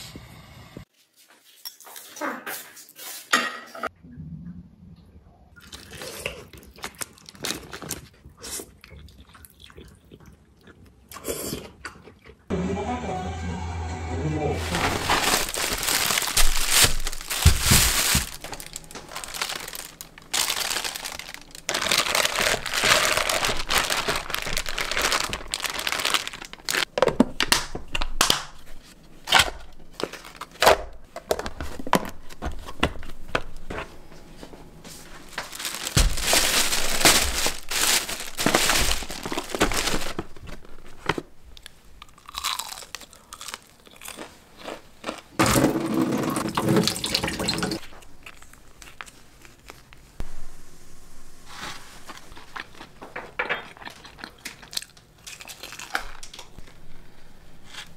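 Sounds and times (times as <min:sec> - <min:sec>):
bags rustling and crinkling: 0:14.6 - 0:27.0, 0:31.4 - 0:41.8
plastic containers being handled: 0:14.7 - 0:28.7, 0:29.4 - 0:41.4.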